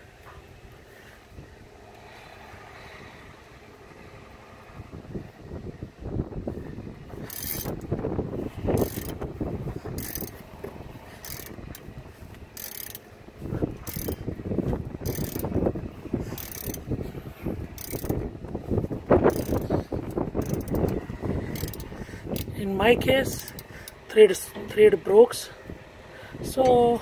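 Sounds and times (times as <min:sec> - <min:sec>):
ratchet wrench clicking: 0:07.2 - 0:07.9, 0:08.7 - 0:09.2, 0:09.9 - 0:10.4, 0:11.2 - 0:11.9, 0:12.5 - 0:13.1, 0:13.8 - 0:14.2, 0:15.0 - 0:15.6, 0:16.3 - 0:16.9, 0:17.8 - 0:18.2, 0:19.2 - 0:22.6, 0:23.3 - 0:24.0.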